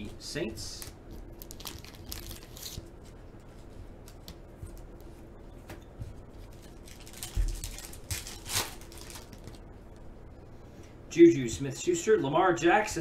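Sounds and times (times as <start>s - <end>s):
foil wrapper crinkling: 0.7s - 3.0s, 6.4s - 9.7s
sharp foil rustle: 1.3s - 2.8s, 6.6s - 9.6s.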